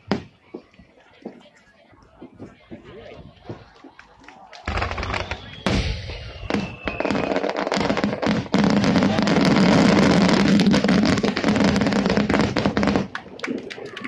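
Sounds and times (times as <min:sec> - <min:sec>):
fireworks bangs and crackling: 0:00.0 - 0:00.7, 0:04.7 - 0:14.0.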